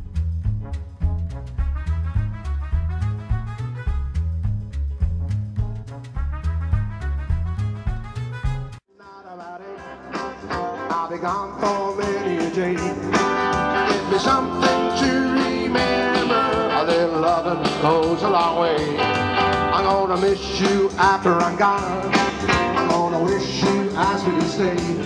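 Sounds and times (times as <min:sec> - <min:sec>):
upbeat guitar band music: 0:00.0 - 0:08.8, 0:09.4 - 0:25.0
person singing: 0:08.9 - 0:25.0.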